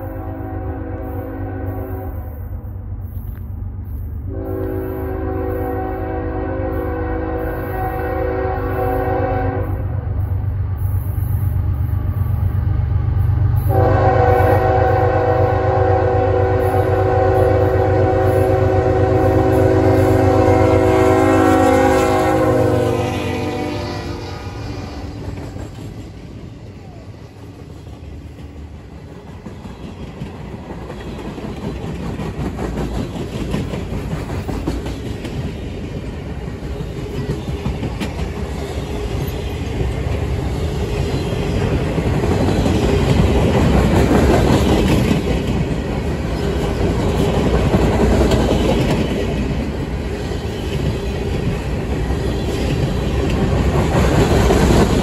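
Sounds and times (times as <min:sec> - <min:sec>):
train air horn blasts: 0:00.0 - 0:02.5, 0:04.3 - 0:10.0, 0:13.6 - 0:25.2
train wheels on rails: 0:00.0 - 0:55.0.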